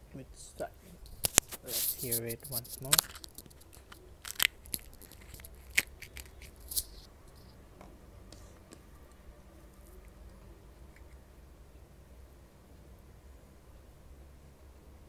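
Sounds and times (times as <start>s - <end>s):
fried puri crunching: 1.0s - 7.6s.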